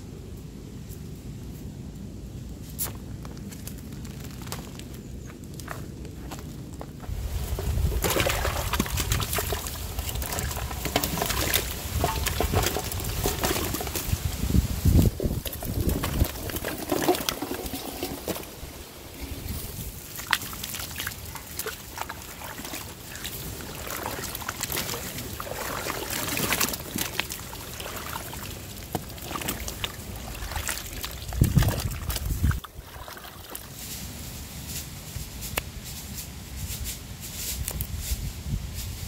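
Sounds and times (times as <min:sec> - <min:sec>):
water sloshing and trickling: 0:07.0 - 0:34.0.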